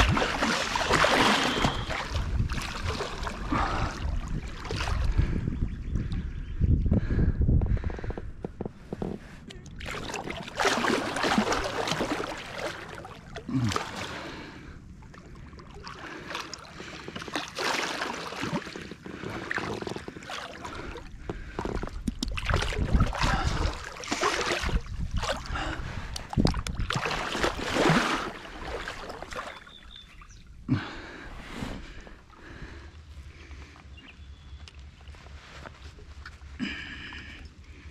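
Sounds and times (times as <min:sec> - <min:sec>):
fish thrashing in water: 0:00.0 - 0:05.1, 0:09.7 - 0:14.4, 0:15.0 - 0:29.9.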